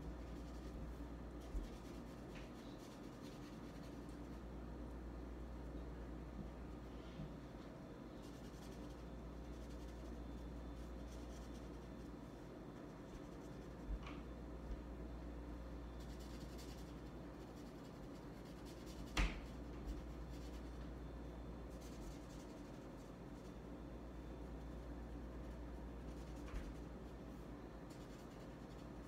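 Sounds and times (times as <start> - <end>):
marker scratching on paper: 0.0 - 4.3, 16.0 - 20.8
steady low hum: 0.0 - 29.0.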